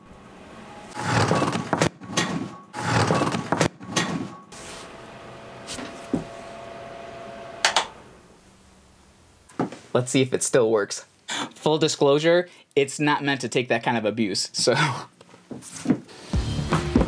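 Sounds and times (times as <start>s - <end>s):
fan humming: 4.5s - 10.8s.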